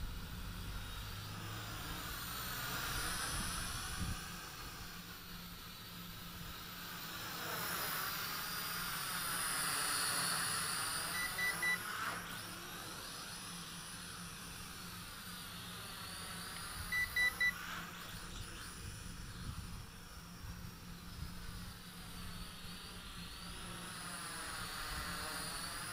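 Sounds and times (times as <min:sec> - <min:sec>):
drone propellers whirring: 0:00.0 - 0:25.9
high electronic beeps: 0:11.1 - 0:11.8, 0:16.9 - 0:17.6.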